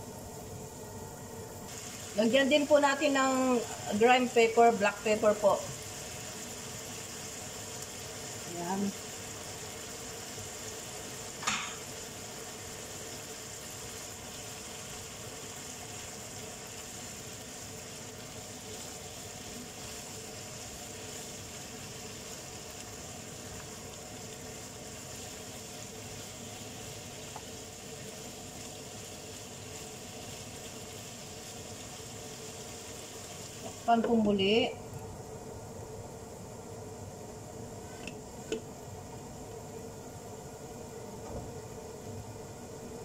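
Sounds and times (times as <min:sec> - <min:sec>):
food sizzling in a pan: 0:00.0 - 0:43.0
spatula stirring in a pan: 0:09.0 - 0:33.9.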